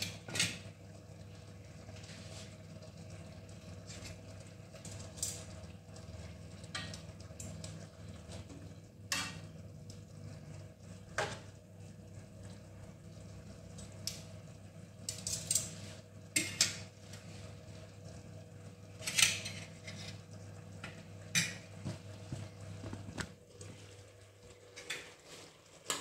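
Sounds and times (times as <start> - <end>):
metal utensil scraping metal pot: 19.0 - 20.3.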